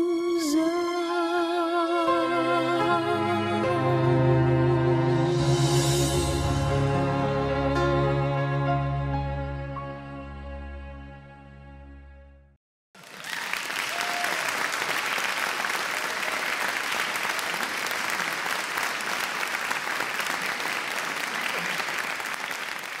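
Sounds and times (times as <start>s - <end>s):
audience applauding: 13.0s - 23.0s.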